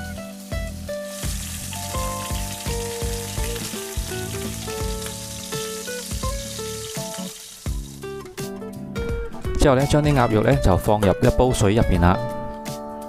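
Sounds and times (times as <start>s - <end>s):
meat sizzling in hot oil: 0.0s - 8.5s
light music with plucked notes: 0.0s - 13.0s.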